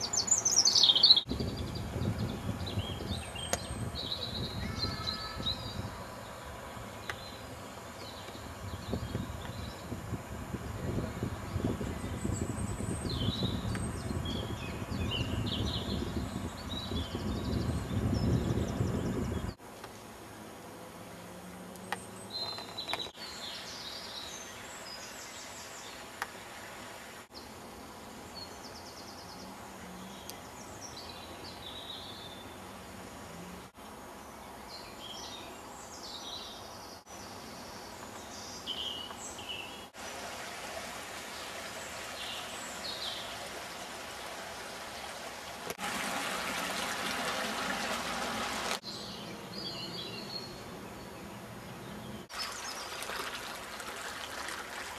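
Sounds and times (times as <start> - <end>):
small birds singing: 0.0 - 20.0, 21.8 - 26.3, 27.3 - 40.0, 41.3 - 44.3, 48.8 - 53.2
steady outdoor hiss: 0.0 - 54.9
running water rushing: 23.5 - 27.4, 39.9 - 48.8, 52.3 - 54.9.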